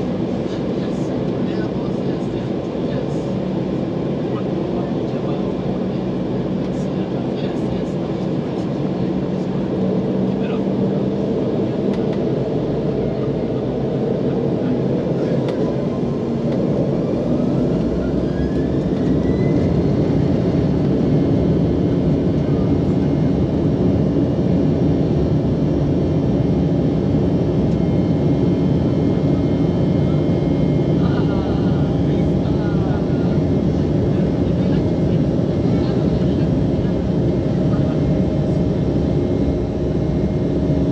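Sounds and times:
aircraft rolling noise: 0:08.2 - 0:40.9.

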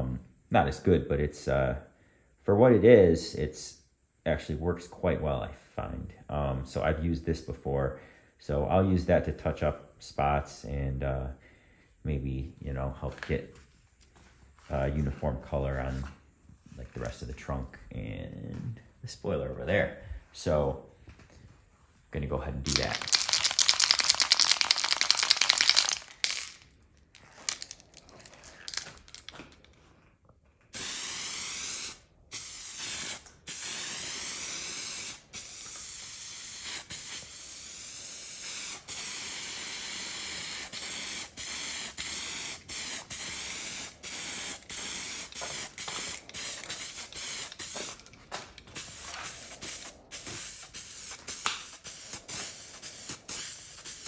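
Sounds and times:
aerosol spray can hissing: 0:22.7 - 0:26.6, 0:30.8 - 0:48.1, 0:48.8 - 0:54.0.

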